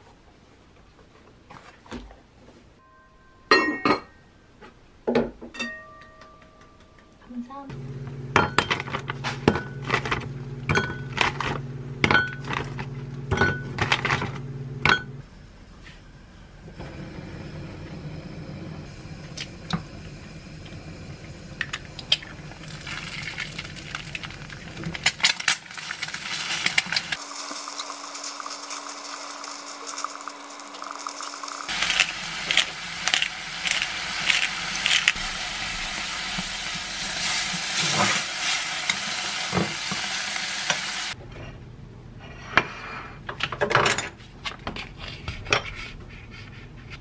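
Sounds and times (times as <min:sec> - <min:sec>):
egg frying in a pan: 0:16.9 - 0:41.2.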